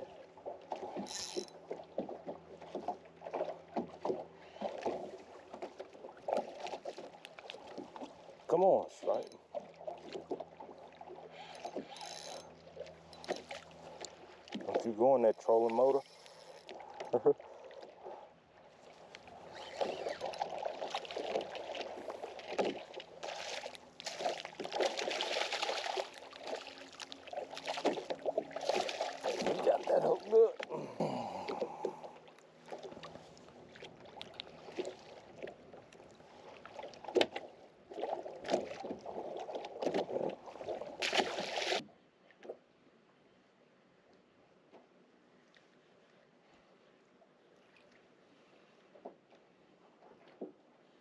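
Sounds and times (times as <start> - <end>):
water slapping against boat hull: 0.3 - 8.3, 9.0 - 12.2, 12.8 - 15.0, 19.0 - 30.7, 32.6 - 42.6
fish splashing in water: 19.4 - 30.4, 36.6 - 41.8.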